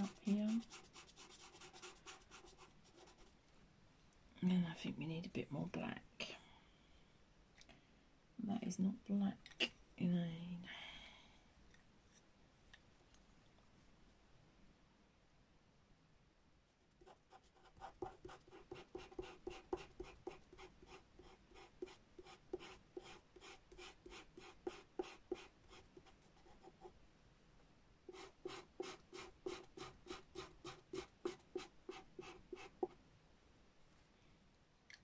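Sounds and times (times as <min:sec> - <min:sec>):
pencil scratching on paper: 0:00.0 - 0:03.3, 0:17.0 - 0:26.9, 0:28.1 - 0:33.0.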